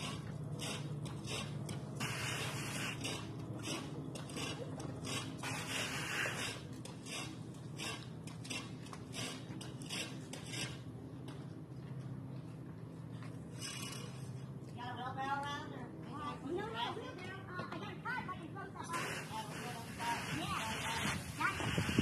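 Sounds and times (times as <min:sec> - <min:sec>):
steady low hum: 0:00.0 - 0:22.0
hose spraying water on car: 0:02.0 - 0:03.2, 0:04.4 - 0:07.2, 0:18.9 - 0:22.0.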